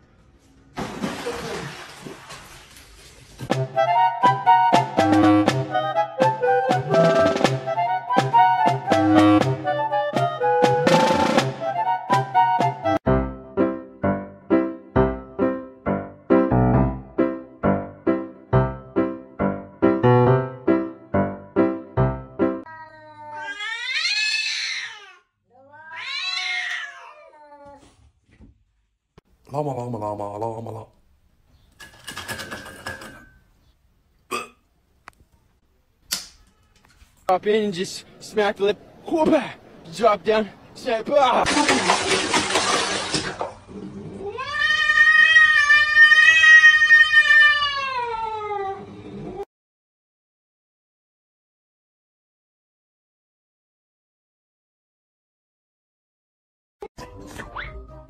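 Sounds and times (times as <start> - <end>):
cat yowling: 22.7 - 27.8, 44.2 - 48.9.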